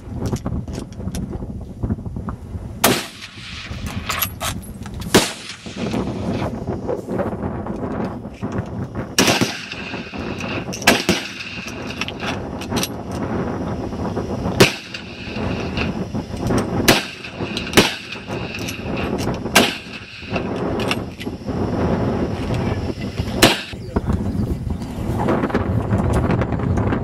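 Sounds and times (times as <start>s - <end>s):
rifle shots: 2.8s - 4.2s, 5.1s - 6.4s, 9.2s - 13.0s, 14.5s - 21.0s, 23.4s - 23.8s.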